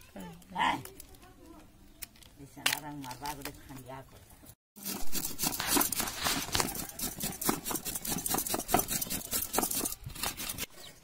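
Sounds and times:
potato scraping on metal grater: 0:04.8 - 0:10.7.

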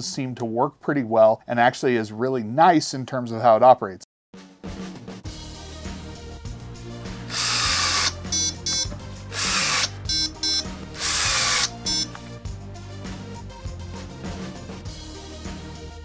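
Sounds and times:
background music with low beat: 0:04.5 - 0:16.0
cordless drill driving screws: 0:07.3 - 0:12.2
drill clutch buzzing pulses: 0:07.3 - 0:12.2.

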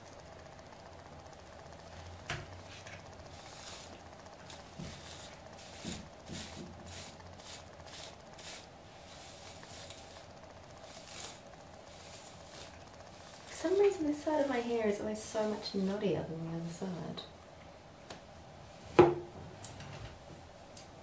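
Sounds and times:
hairbrush brushing through hair: 0:02.7 - 0:17.2.

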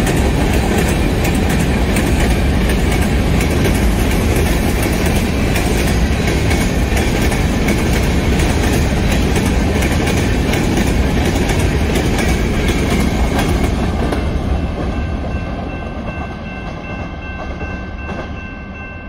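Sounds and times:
train wheels clattering over rail joints: 0:00.0 - 0:14.9
crossing warning bell ringing: 0:14.0 - 0:19.0.

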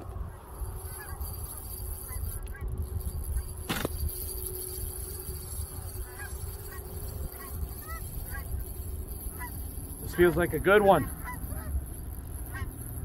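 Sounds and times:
wind rumble on microphone: 0:00.0 - 0:13.0
sharp click: 0:03.6 - 0:04.0
geese honking: 0:11.0 - 0:11.7.

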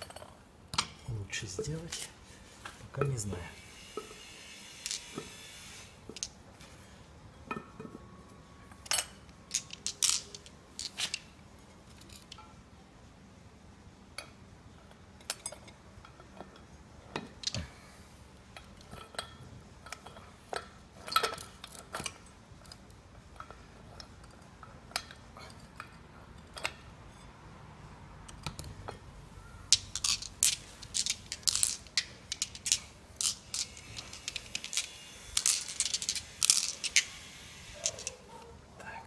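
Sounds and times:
metal parts clicking and clinking: 0:04.8 - 0:05.4, 0:06.1 - 0:06.4, 0:08.8 - 0:12.6, 0:18.6 - 0:26.9, 0:29.7 - 0:38.5.

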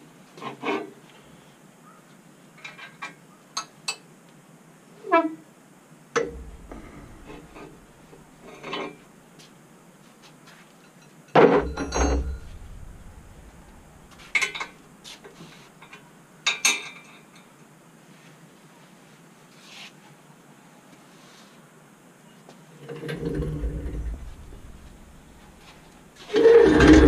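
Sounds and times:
metal tools clanking on engine: 0:06.2 - 0:09.0, 0:11.4 - 0:14.9.

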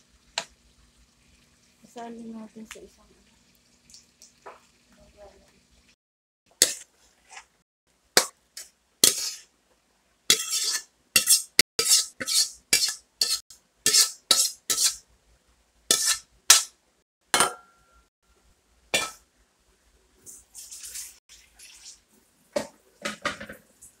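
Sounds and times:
metal spatula scraping a wok: 0:06.6 - 0:07.5, 0:08.6 - 0:09.5, 0:10.3 - 0:15.0, 0:15.9 - 0:16.7.

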